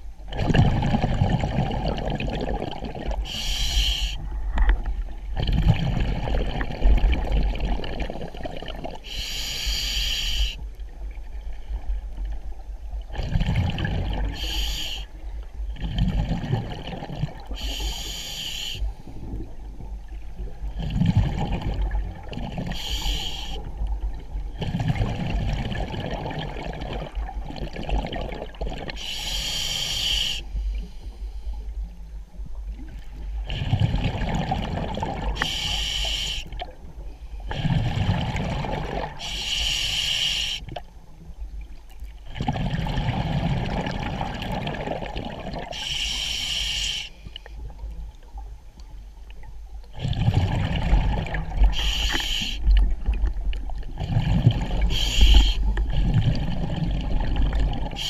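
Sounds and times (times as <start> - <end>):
exhaled bubbles rumbling: 0.0 - 9.1, 10.7 - 14.6, 15.2 - 17.7, 19.0 - 29.0, 31.8 - 35.6, 36.5 - 39.4, 40.7 - 45.9, 47.6 - 58.0
regulator hiss on inhale: 3.2 - 4.3, 9.0 - 10.7, 14.3 - 15.4, 17.5 - 19.5, 22.7 - 23.8, 29.0 - 31.9, 35.3 - 38.0, 39.2 - 40.8, 45.7 - 47.7, 51.6 - 52.8, 54.8 - 56.0.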